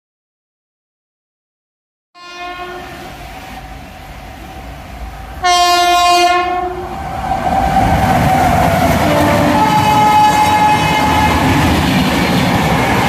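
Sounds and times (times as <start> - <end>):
train horn blast: 2.2 - 3.2, 5.4 - 6.9, 9.0 - 11.6
train rumbling on track: 2.3 - 13.0.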